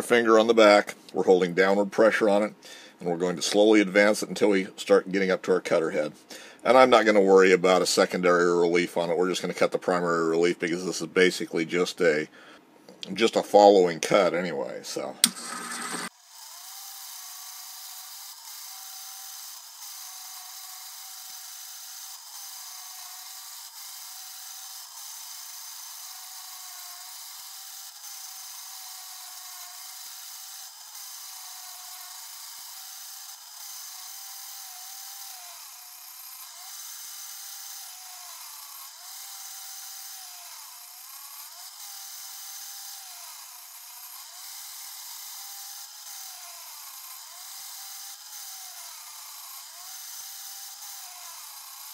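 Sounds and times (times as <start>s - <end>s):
grinder spindle whine: 15.0s - 51.9s
hiss of grinding: 15.2s - 16.1s.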